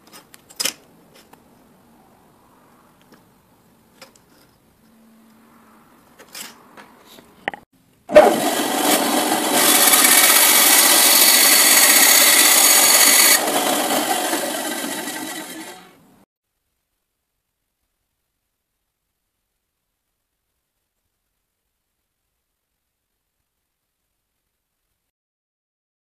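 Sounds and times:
bandsaw cutting: 8.1 - 16.0.

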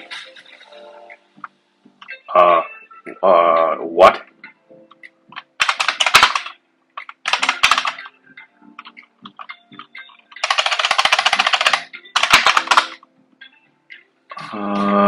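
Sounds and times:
computer keyboard typing: 5.4 - 8.1, 10.4 - 13.0.

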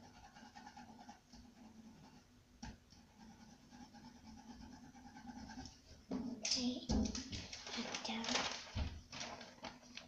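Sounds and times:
colouring tool scratching paper: 0.0 - 2.3, 3.0 - 5.9.

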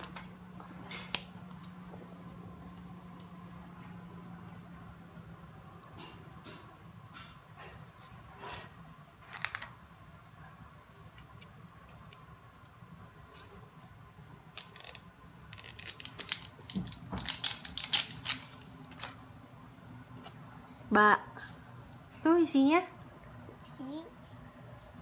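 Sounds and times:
plastic wrapping crinkling and tearing: 8.4 - 9.8, 14.2 - 18.7.

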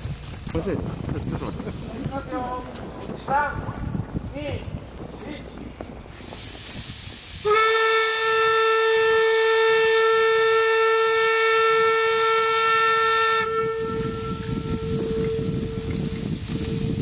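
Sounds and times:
steam hissing: 5.9 - 17.0
steam whistle blast: 6.3 - 17.0.

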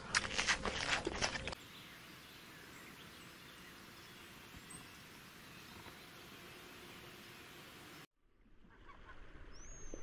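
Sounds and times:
rough crackling noise: 0.0 - 1.6
outdoor background hiss: 1.6 - 8.1.

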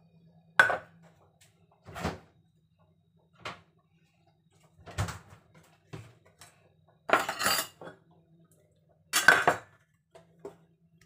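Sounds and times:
faint low hum: 0.0 - 11.0
dishes and utensils clinking: 7.1 - 8.0, 9.2 - 9.7
dishes rattling: 9.2 - 9.7.

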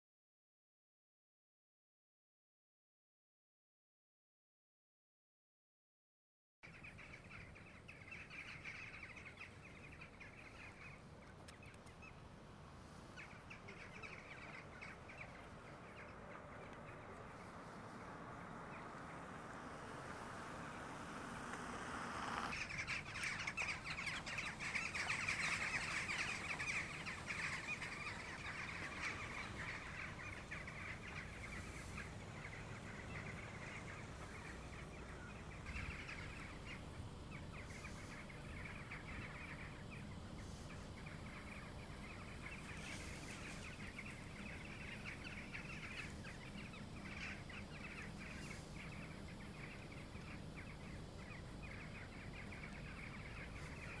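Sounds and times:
flock of jackdaws calling: 6.7 - 12.2, 12.9 - 54.0.

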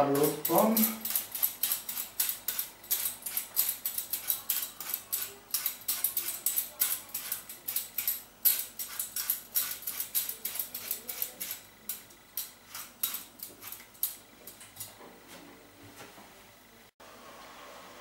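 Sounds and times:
peeler scraping apple skin: 0.0 - 14.1.

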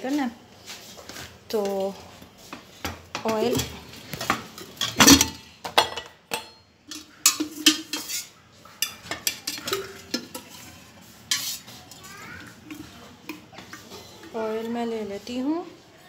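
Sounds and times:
metal pots and spoon clinking: 2.8 - 15.4.

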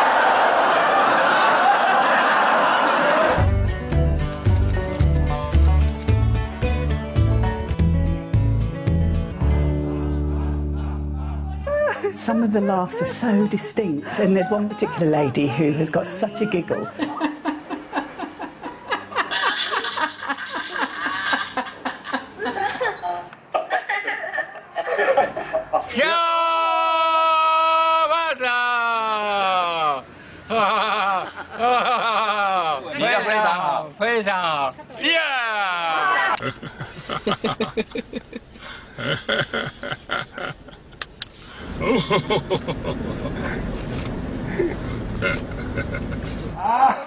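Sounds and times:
group of people laughing: 0.0 - 3.6, 10.0 - 26.1, 30.5 - 33.6, 35.8 - 43.8, 44.4 - 47.0
car engine and road rumble: 40.8 - 46.6.

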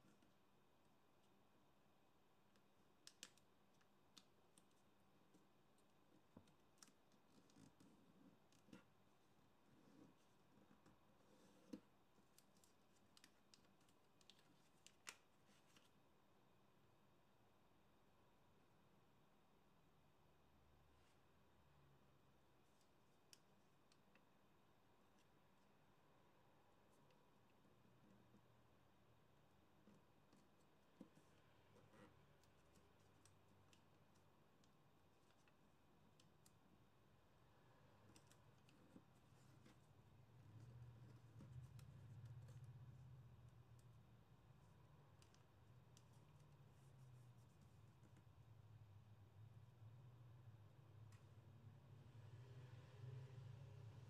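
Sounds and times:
paper being folded and creased: 9.6 - 16.0, 38.0 - 43.0.

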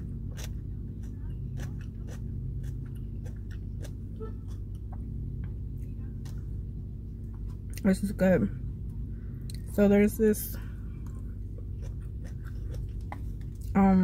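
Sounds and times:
person chewing food: 0.0 - 5.6, 10.8 - 13.7
low hum inside car: 0.0 - 14.0.

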